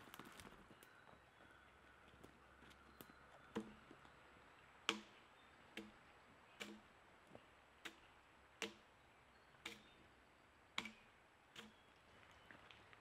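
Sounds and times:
axe chopping wood: 3.5 - 3.8, 4.8 - 6.0, 6.6 - 6.9, 7.8 - 8.9, 9.6 - 10.0, 10.7 - 11.8.

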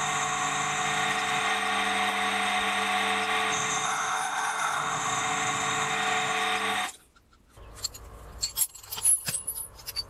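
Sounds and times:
milling machine running: 0.0 - 6.9
metallic clicks and clinks: 7.2 - 10.0.

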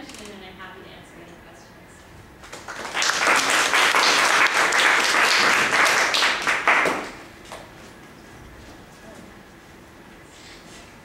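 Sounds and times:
audience applauding: 2.4 - 7.3.

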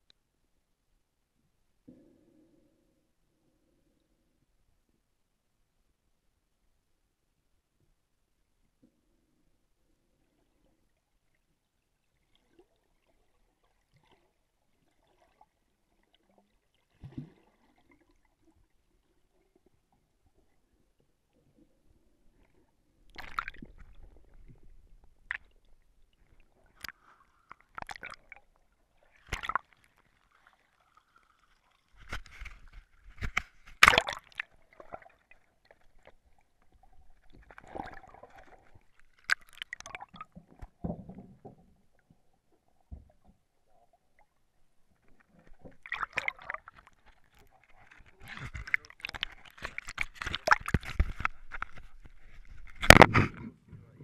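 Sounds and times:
water splashing and sloshing: 10.3 - 54.0
underwater bubbling: 12.1 - 54.0
muffled underwater knocks: 52.8 - 54.0.

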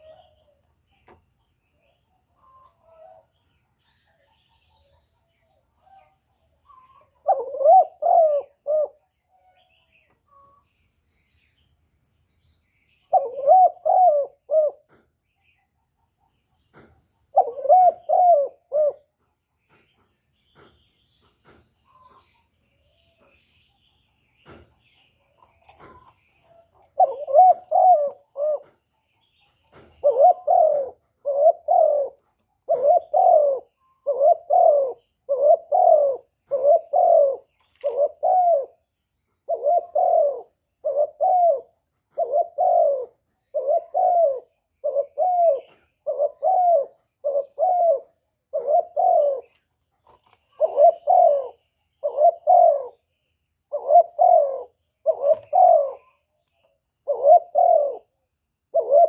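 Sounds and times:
dove cooing: 0.0 - 0.6, 2.4 - 9.7, 13.0 - 15.0, 17.3 - 19.2, 25.6 - 28.9, 29.7 - 53.1, 53.7 - 56.3, 57.0 - 59.0.

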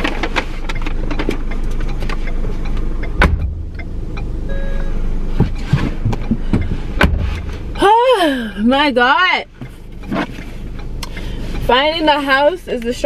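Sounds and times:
low car hum: 0.0 - 13.0
car door shutting: 3.2 - 3.8, 5.3 - 7.7
short electronic tone: 4.5 - 5.1
person climbing out of car: 5.3 - 7.8.

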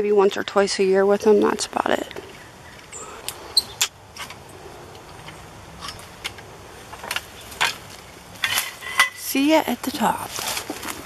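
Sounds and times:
soft rustling: 9.8 - 11.0.

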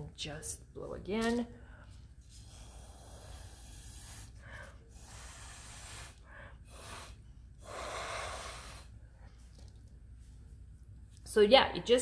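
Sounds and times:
breathy puffs through a straw: 2.2 - 9.0.

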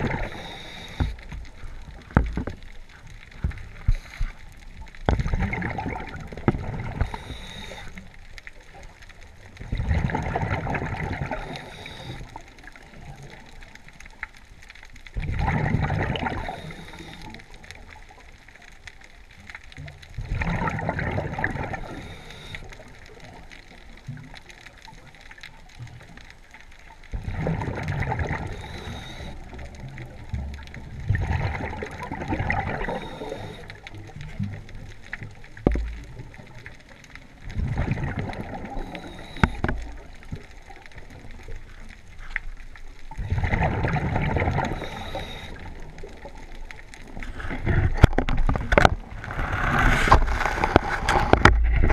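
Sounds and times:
exhaled bubbles underwater: 0.0 - 51.9
regulator inhalations: 0.2 - 1.2, 7.1 - 8.0, 21.8 - 22.7, 28.5 - 29.4, 32.8 - 33.7, 38.8 - 39.6.

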